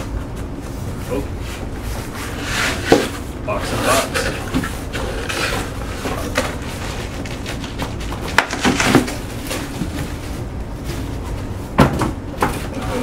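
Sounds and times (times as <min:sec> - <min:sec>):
cardboard flaps scraping and rustling: 0:01.6 - 0:11.7.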